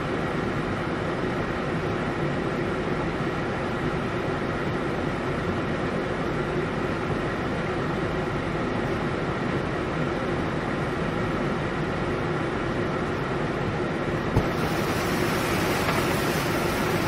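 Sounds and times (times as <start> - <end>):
torrential rain and floodwater: 14.4 - 17.0.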